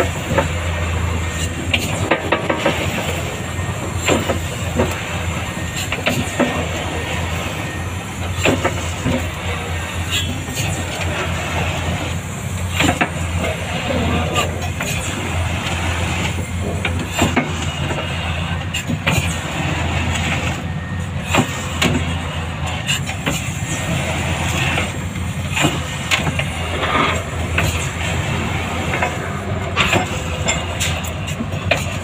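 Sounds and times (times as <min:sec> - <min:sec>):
sharp clicks and knocks: 0:01.4 - 0:03.2, 0:28.9 - 0:32.0.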